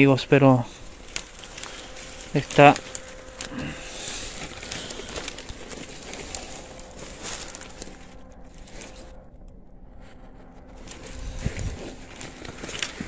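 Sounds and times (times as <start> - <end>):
distant factory motors humming: 0.0 - 13.0
rustling of brush and leaves: 0.0 - 13.0.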